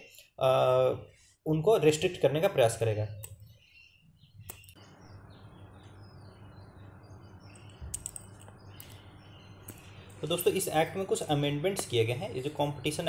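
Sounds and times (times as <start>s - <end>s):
faint bird chirps: 3.1s - 11.0s
steady low hum: 4.3s - 13.0s.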